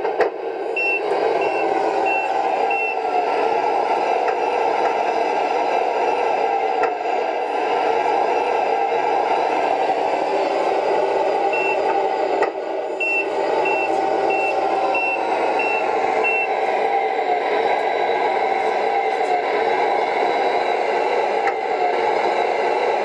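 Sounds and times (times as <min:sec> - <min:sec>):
diesel engine sound effect: 0:00.0 - 0:23.0
reversing beeper: 0:00.6 - 0:03.2, 0:11.4 - 0:12.0, 0:12.8 - 0:19.3.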